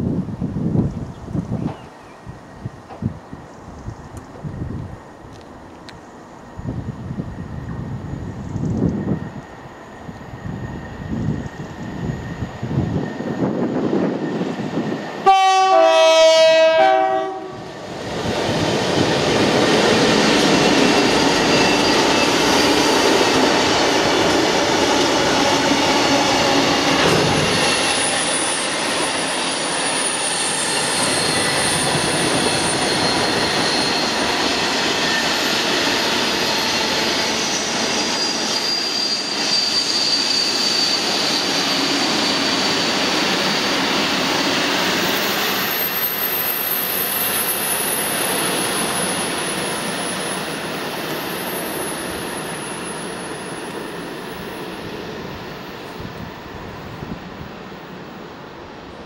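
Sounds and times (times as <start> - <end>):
two-tone locomotive horn: 15.2 - 17.8
wheels squealing: 18.6 - 54.6.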